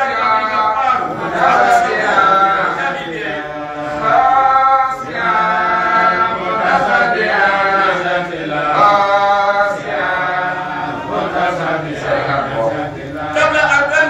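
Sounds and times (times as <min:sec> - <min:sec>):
man chanting: 0:12.0 - 0:14.0.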